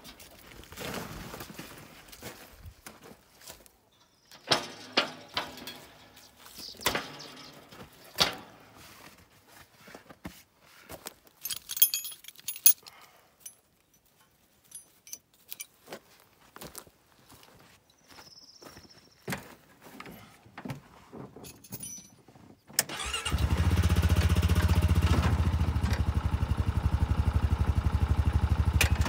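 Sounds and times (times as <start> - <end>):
metal tools clanking: 4.0 - 8.6, 11.4 - 15.8, 21.4 - 22.3
small metal parts jingling: 11.3 - 15.9, 21.4 - 22.2.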